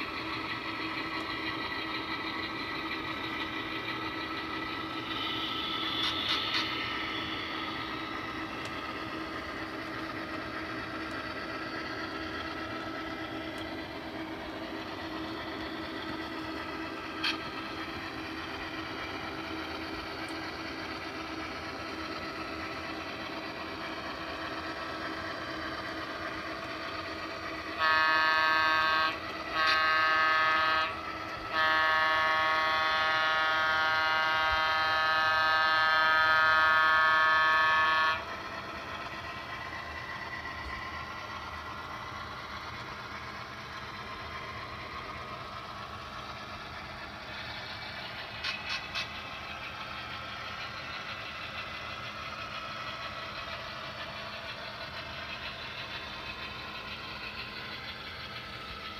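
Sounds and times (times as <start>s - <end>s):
model locomotive diesel engine drone: 0.0s - 58.9s
locomotive horn blasts: 27.7s - 38.3s.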